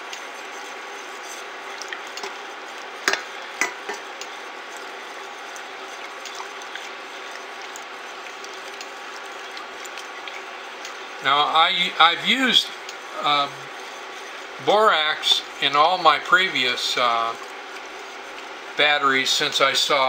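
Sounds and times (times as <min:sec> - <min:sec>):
spatula stirring in pot: 0:00.0 - 0:20.0
steady hiss: 0:10.4 - 0:20.0.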